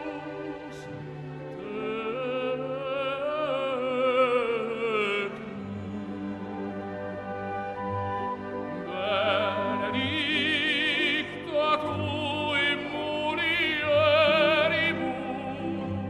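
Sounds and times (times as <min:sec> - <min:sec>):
operatic singing: 0:00.0 - 0:16.0
orchestral accompaniment: 0:00.0 - 0:16.0.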